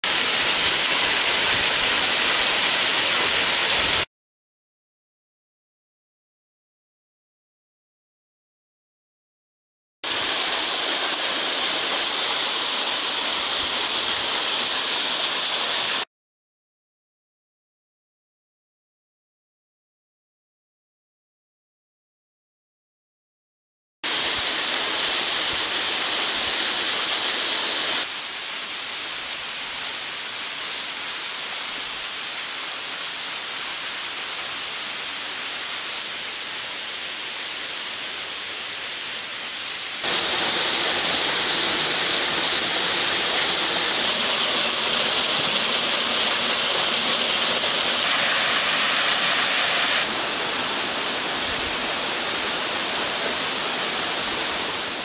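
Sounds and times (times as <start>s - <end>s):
waterfall pouring and splashing: 0.0s - 4.1s, 10.0s - 16.1s, 24.0s - 55.0s.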